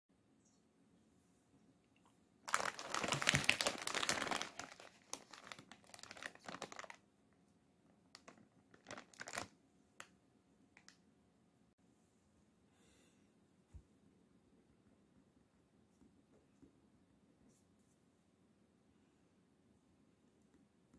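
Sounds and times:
plastic packet crinkling: 0:02.4 - 0:07.0, 0:08.2 - 0:09.6.

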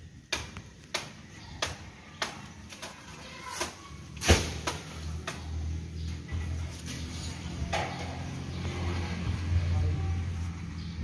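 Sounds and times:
machete chopping palm fronds: 0:00.3 - 0:05.6.

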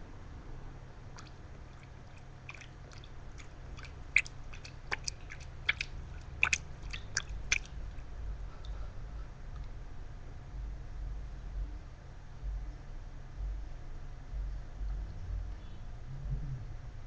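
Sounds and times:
light ticks and small splashes: 0:01.1 - 0:08.8.

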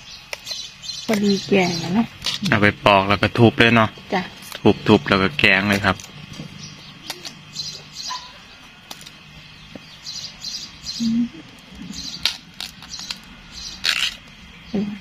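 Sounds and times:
birds chirping: 0:00.0 - 0:15.0
bamboo shoots snapping: 0:05.7 - 0:07.4, 0:08.8 - 0:09.2, 0:12.2 - 0:14.4.

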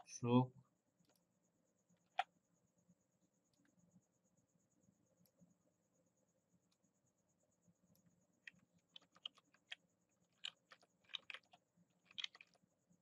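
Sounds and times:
faint high whine: 0:00.0 - 0:13.0
keyboard and mouse clicking: 0:07.9 - 0:12.6.

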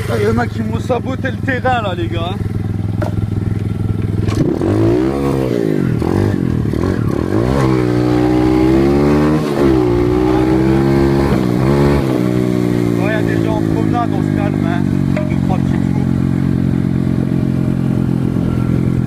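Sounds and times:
bike rattling: 0:00.0 - 0:04.8, 0:09.7 - 0:19.0
dirt bike engine revving: 0:00.0 - 0:19.0.

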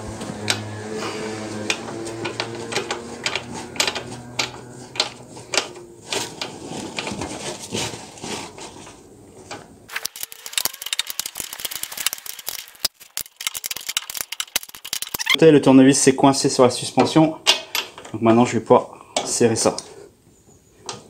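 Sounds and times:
metal tools clicking and knocking: 0:10.0 - 0:15.4
socket ratchet clicking: 0:10.0 - 0:15.4.

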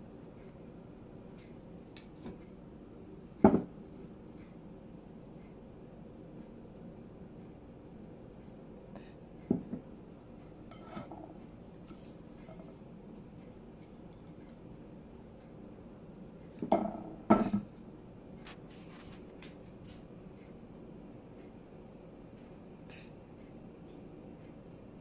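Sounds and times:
knocks on a ceramic plate: 0:03.4 - 0:03.7.

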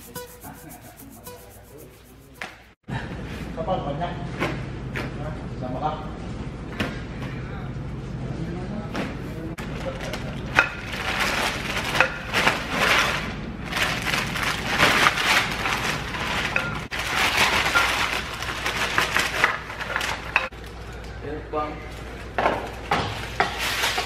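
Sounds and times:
plastic bag crinkling: 0:13.7 - 0:20.3.

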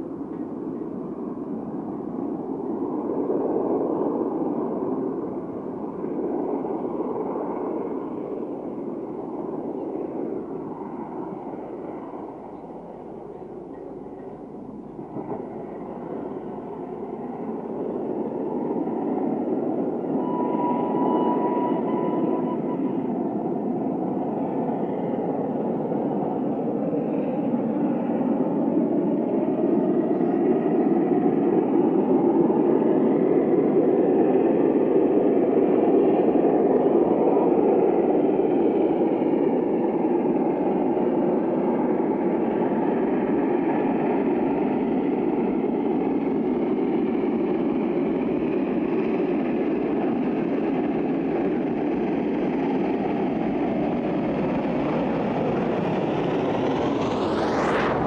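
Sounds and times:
steam locomotive exhaust and running: 0:00.0 - 0:58.0.

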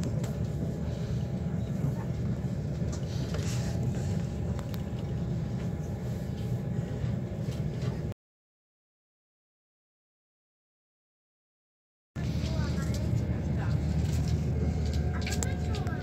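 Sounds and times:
train wheels rumbling: 0:12.2 - 0:16.0.

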